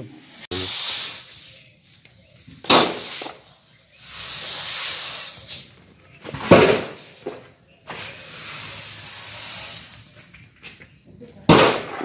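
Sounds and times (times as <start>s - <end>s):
grain pouring onto a heap: 8.0s - 10.2s.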